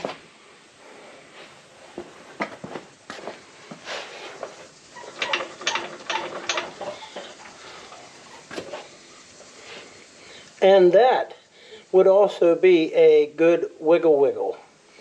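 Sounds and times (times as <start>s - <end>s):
suspension clicks and creaks: 4.4s - 9.5s.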